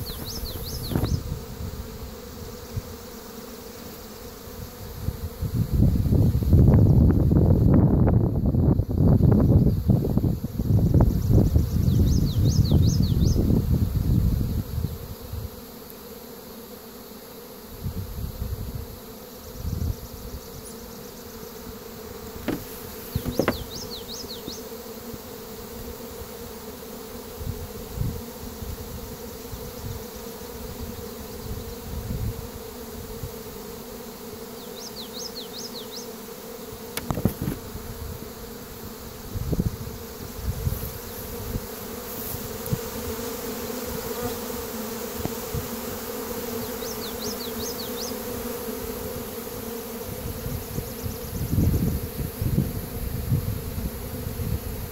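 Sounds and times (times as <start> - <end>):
honeybees buzzing: 0.0 - 54.9
bumps on microphone: 22.4 - 23.7.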